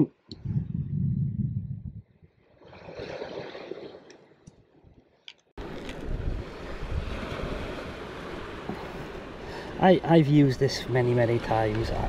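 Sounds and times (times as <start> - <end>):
wind on microphone: 0.3 - 3.2, 5.6 - 9.0
waves washing onto shingle: 6.4 - 12.0.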